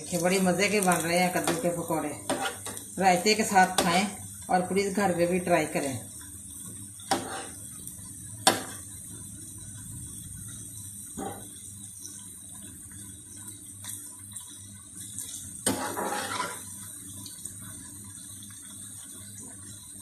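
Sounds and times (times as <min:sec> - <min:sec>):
food sizzling in hot oil: 0:00.0 - 0:20.0
metal spatula scraping a pan: 0:00.8 - 0:02.8, 0:07.1 - 0:07.7, 0:15.6 - 0:16.8.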